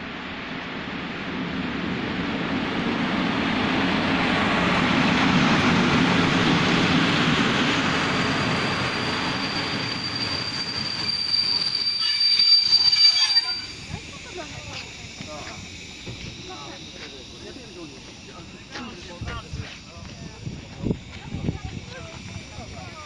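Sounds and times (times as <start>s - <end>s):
train wheels rumbling: 0.4s - 23.0s
high-pitched brake squeal: 8.2s - 14.9s.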